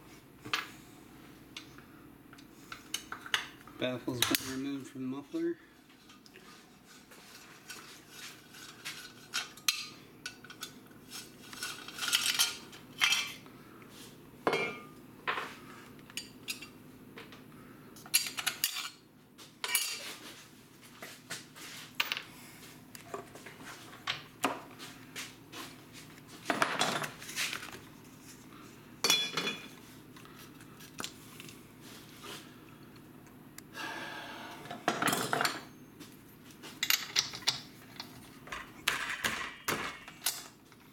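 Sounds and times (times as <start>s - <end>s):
metal tools clinking on workbench: 29.0s - 29.8s.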